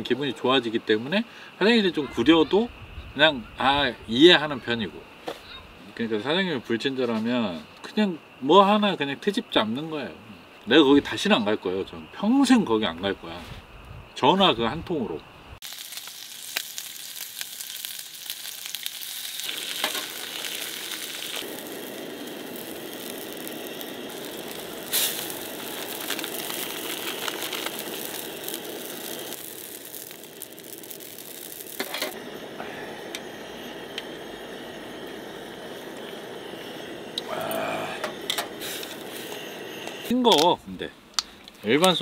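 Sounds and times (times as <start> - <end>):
food sizzling in hot fat: 15.6 - 40.5.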